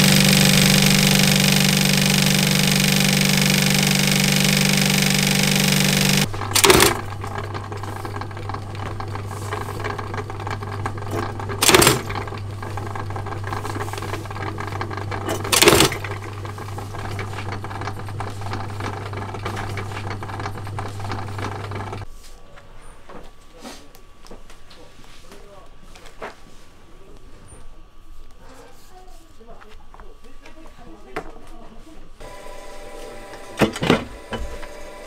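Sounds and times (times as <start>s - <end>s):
die press humming: 0.0s - 22.1s, 32.2s - 35.0s
industrial sewing machine running: 0.0s - 22.1s, 32.2s - 35.0s
die press clunks: 6.4s - 7.5s, 11.0s - 12.4s.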